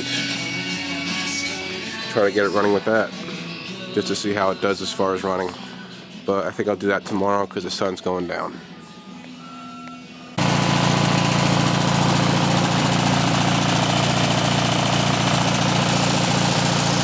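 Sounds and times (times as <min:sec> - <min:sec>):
tractor engine running steadily: 0:10.4 - 0:17.0.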